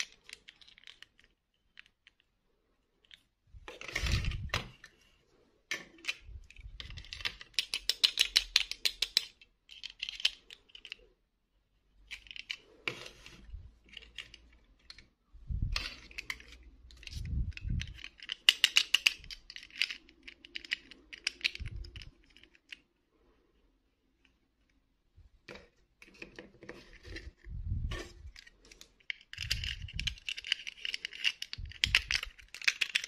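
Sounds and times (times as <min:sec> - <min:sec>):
plastic dolls clicking and rattling: 0:00.0 - 0:05.0, 0:05.7 - 0:11.1, 0:11.9 - 0:23.0, 0:28.2 - 0:33.0.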